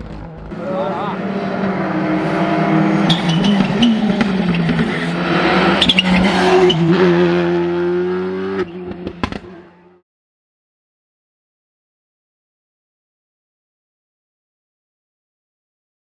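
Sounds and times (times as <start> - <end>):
rally car engine at high revs: 0.0 - 10.0.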